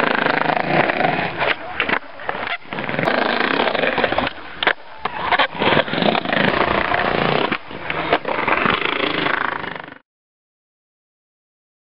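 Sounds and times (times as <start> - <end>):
skateboard clacking on ground: 0.0 - 10.0
skateboard wheels rolling on concrete: 0.0 - 10.0.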